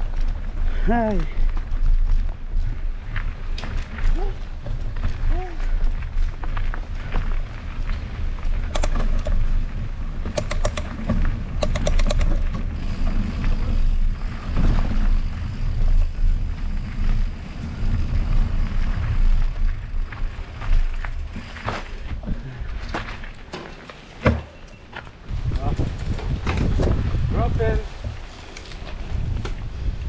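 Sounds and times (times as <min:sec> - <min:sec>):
bike rolling on dirt trail: 0:00.0 - 0:30.0
rapid clicking: 0:08.6 - 0:09.4, 0:10.3 - 0:11.0, 0:11.6 - 0:12.5.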